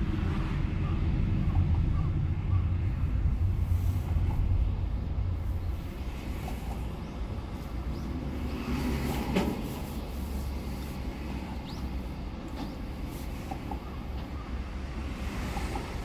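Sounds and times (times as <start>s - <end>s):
engine and road rumble: 0.0s - 16.0s.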